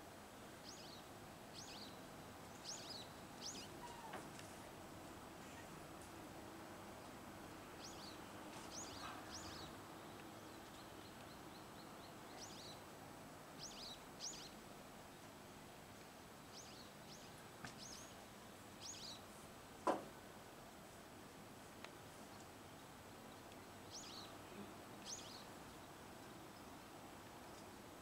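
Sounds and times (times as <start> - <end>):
quiet background noise: 0.0 - 28.0
small birds chirping: 0.6 - 4.2, 6.9 - 13.0, 13.6 - 15.4, 16.5 - 19.3, 22.0 - 28.0.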